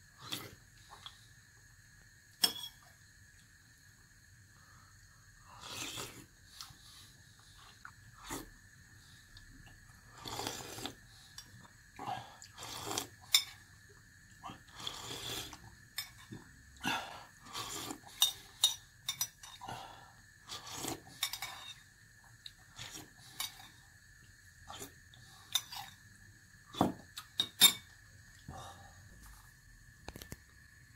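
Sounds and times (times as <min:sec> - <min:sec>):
slurping soup: 0:05.6 - 0:06.8, 0:10.1 - 0:11.0, 0:12.5 - 0:13.2, 0:14.5 - 0:15.6, 0:17.4 - 0:18.4, 0:20.4 - 0:21.6, 0:22.7 - 0:23.7.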